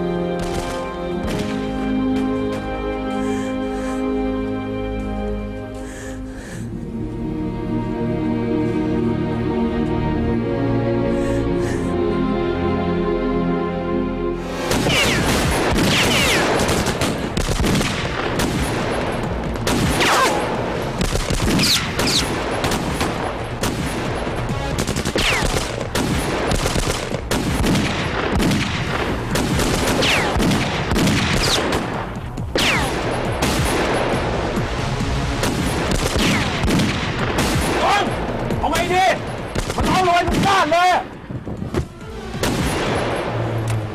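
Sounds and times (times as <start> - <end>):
rapid gunfire: 14.7 - 34.2, 35.4 - 38.1, 39.4 - 40.7.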